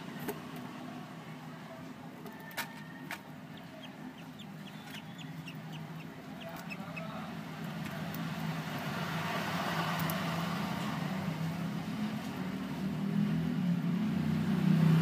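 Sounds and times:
bird chicks chirping: 0:03.5 - 0:08.3.

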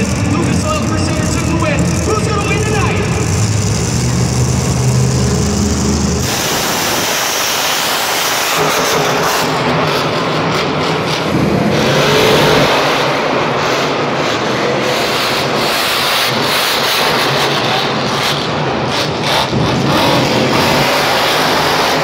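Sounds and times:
monster truck engines revving: 0:00.0 - 0:22.0.

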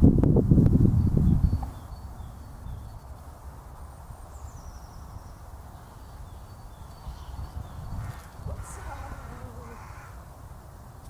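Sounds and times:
wind rumbling on microphone: 0:00.0 - 0:11.0
faint bird chirps: 0:04.1 - 0:10.2.

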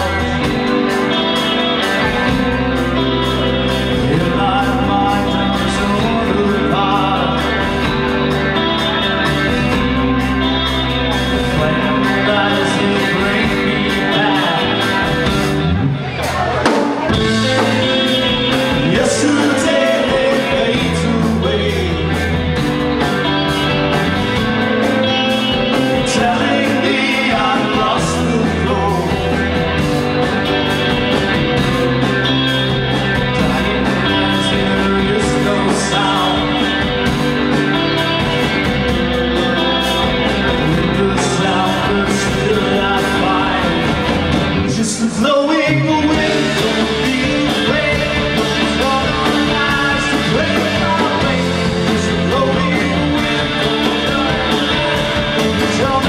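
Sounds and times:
bass guitar: 0:00.0 - 0:56.0
drums: 0:00.0 - 0:56.0
electric guitar: 0:00.0 - 0:56.0
man singing into a microphone: 0:03.8 - 0:08.1, 0:11.4 - 0:15.5, 0:17.2 - 0:22.4, 0:25.8 - 0:29.6, 0:33.3 - 0:37.0, 0:40.5 - 0:56.0.

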